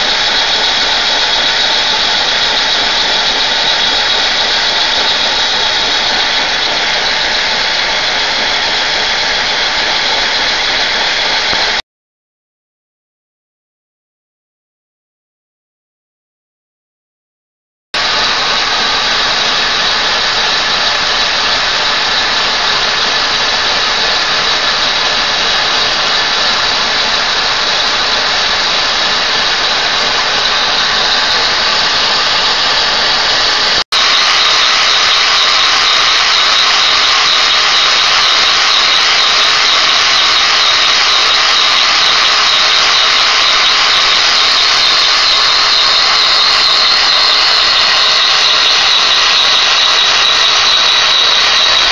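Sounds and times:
air rushing through model engine: 0.0s - 11.8s, 18.0s - 51.9s
high whistling tone: 18.0s - 51.9s.

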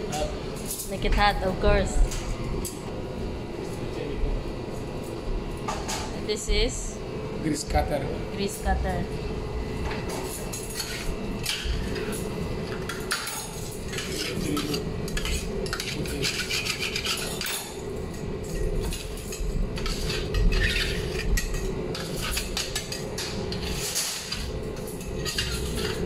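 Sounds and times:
steady hum: 0.0s - 26.0s
cleaning tool scraping griddle: 13.5s - 17.7s, 18.8s - 26.0s.

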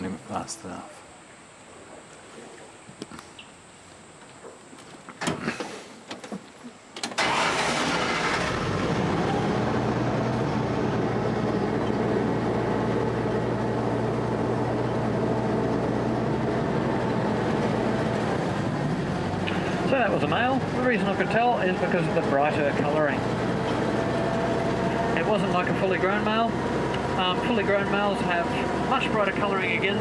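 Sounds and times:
engine humming: 7.2s - 30.0s.

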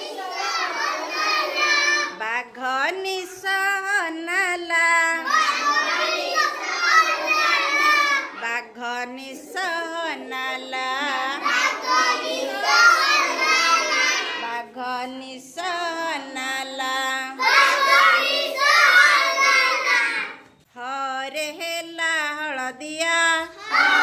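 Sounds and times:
children singing: 0.0s - 2.2s, 5.0s - 20.6s, 23.4s - 24.0s.

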